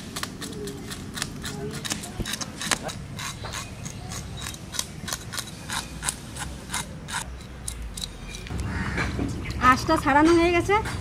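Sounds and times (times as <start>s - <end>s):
knife scraping fish scales: 0.0s - 8.5s.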